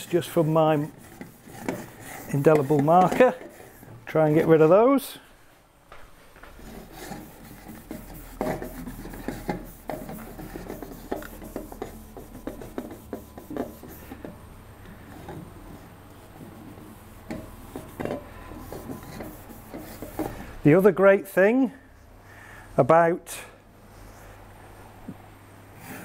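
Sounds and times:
cloth rubbing on metal: 0.0 - 4.8, 6.4 - 14.3, 16.5 - 20.4.

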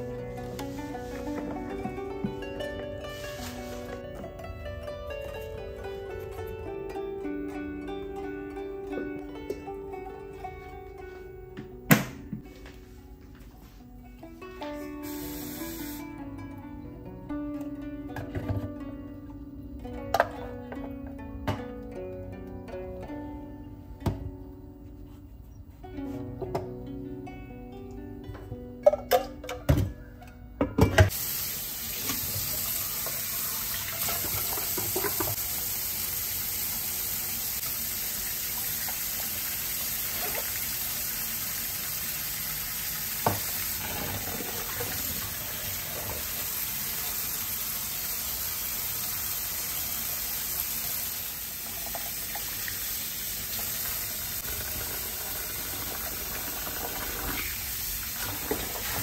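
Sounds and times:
rice being rinsed: 0.0 - 4.4, 31.1 - 59.0
tap water running into pot: 31.1 - 59.0
pot knocking against sink: 34.0 - 35.4.

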